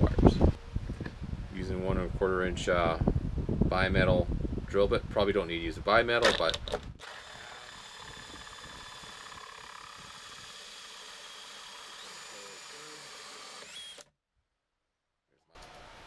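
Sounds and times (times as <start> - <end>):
drill hole saw cutting whine: 7.0 - 14.1.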